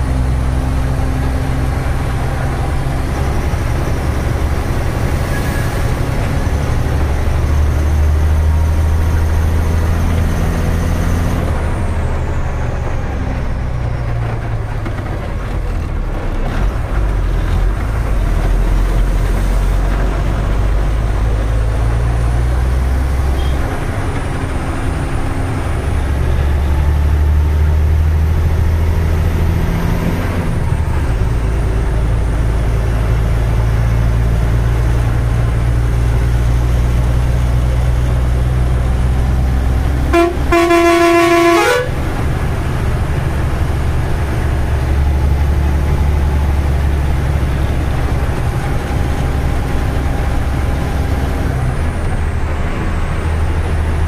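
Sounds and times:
truck diesel engine drone: 0.0 - 54.0
truck horn: 23.3 - 23.8, 40.0 - 42.4.

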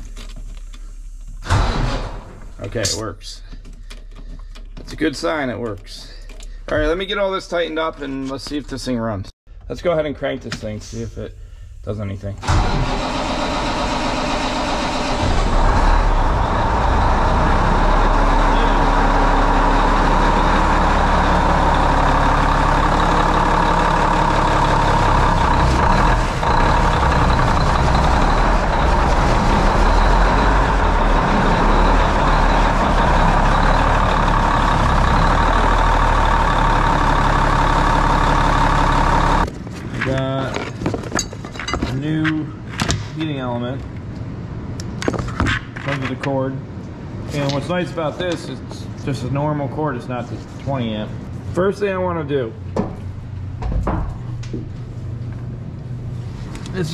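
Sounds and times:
diesel engine running: 10.9 - 39.5.

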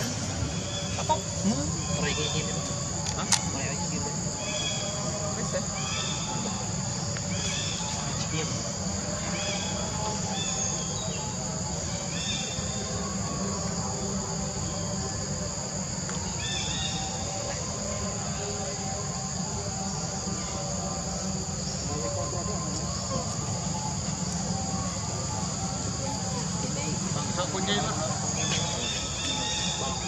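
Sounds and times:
insects buzzing chorus: 0.0 - 30.0.

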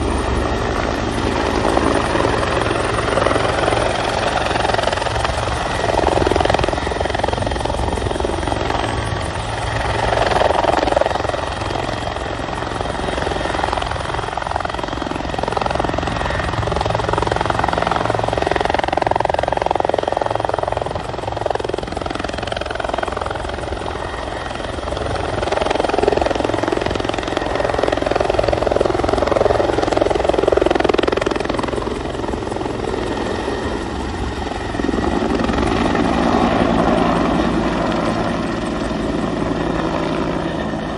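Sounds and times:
helicopter rotor and turbine: 0.0 - 40.9.

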